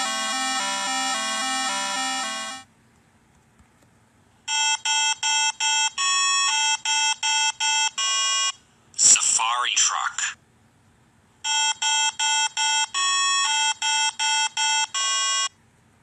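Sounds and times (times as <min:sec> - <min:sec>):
fast repeating electronic notes: 0:00.0 - 0:02.7
ringtone-like beeps: 0:00.0 - 0:02.7, 0:11.5 - 0:15.5.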